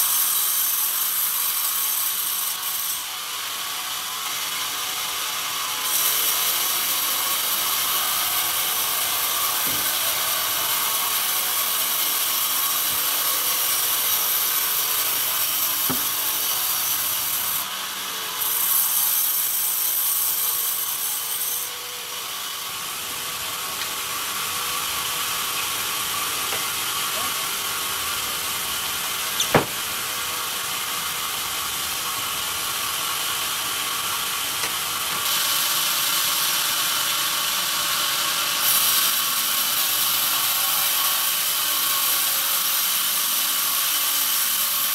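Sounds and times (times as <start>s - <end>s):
band saw cutting wood: 0.0s - 44.9s
sharp knock: 29.4s - 29.8s.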